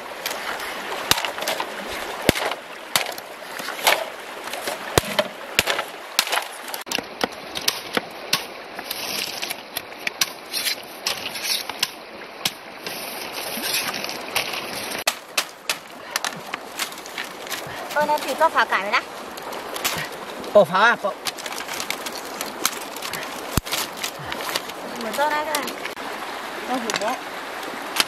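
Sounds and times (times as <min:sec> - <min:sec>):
river rushing: 0:00.0 - 0:28.0
machete splitting bamboo: 0:01.1 - 0:12.6, 0:15.0 - 0:16.9.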